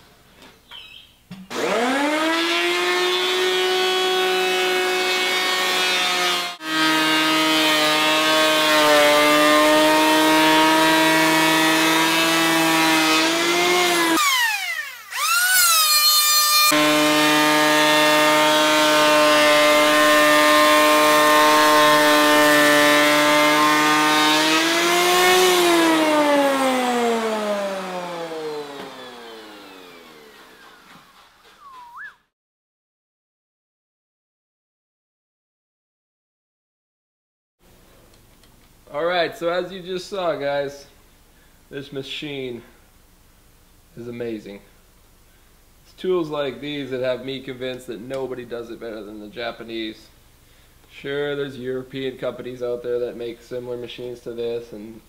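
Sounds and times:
power planer motor whine: 1.5 - 32.0.

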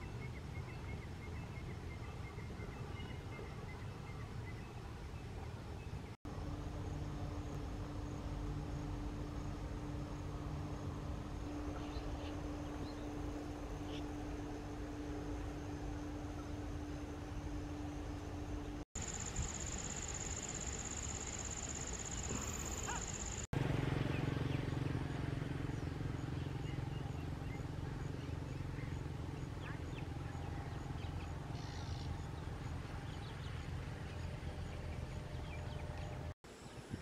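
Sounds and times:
steady low hum: 0.0 - 36.4
steady high whine: 6.3 - 23.5.

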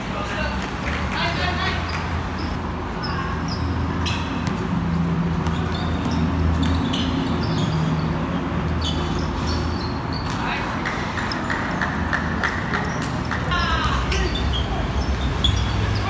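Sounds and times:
sneaker squeaks: 1.2 - 16.0
ball bouncing on concrete: 4.0 - 7.4.

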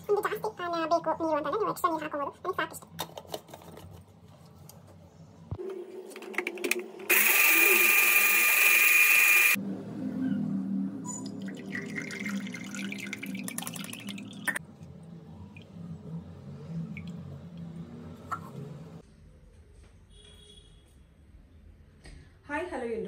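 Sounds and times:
blender motor whining: 7.1 - 9.6
juice dripping: 11.2 - 17.9.

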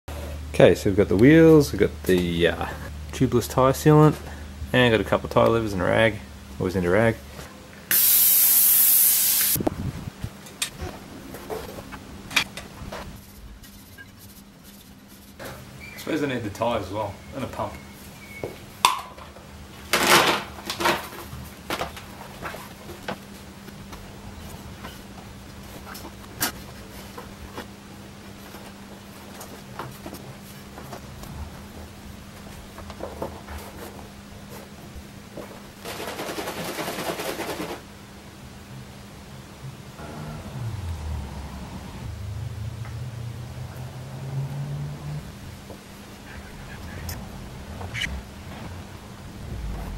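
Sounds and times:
air hissing from tyre: 7.9 - 9.6.

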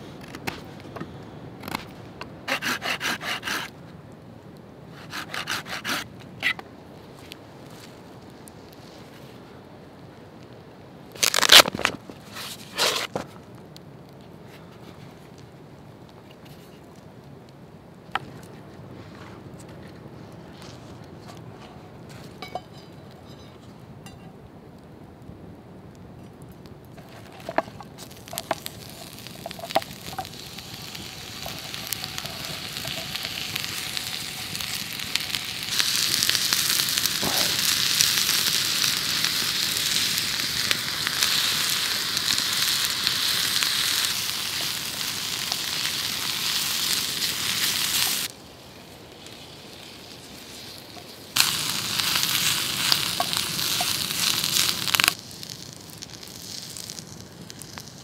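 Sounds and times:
burning wood crackling: 0.0 - 58.0
food sizzling in frying pan: 27.3 - 58.0.

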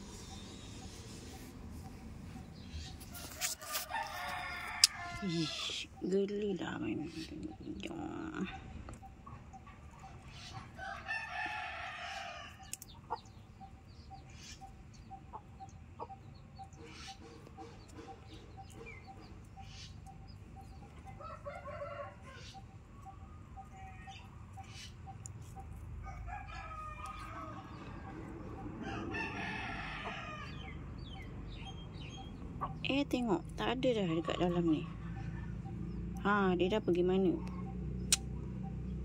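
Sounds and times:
rooster crowing: 3.2 - 5.7, 10.4 - 12.8, 21.1 - 22.6, 26.0 - 31.6
faint steady ticking: 4.4 - 39.0.

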